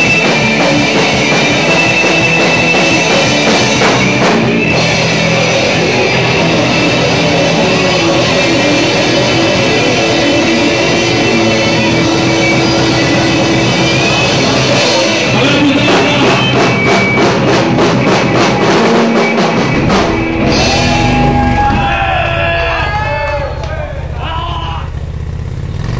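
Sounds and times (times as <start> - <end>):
electric guitar: 0.0 - 24.2
rapid drum hits: 0.0 - 24.2
drum kit: 0.0 - 25.0
bass guitar: 0.0 - 25.9
person singing: 15.1 - 16.8.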